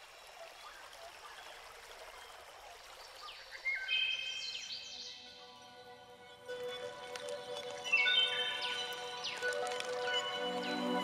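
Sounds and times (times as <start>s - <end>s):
music: 4.8s - 11.0s.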